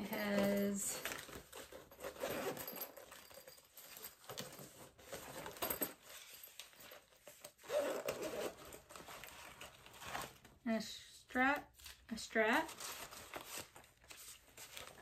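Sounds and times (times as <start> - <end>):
zipper pulled open: 1.8 - 3.0, 7.6 - 9.0.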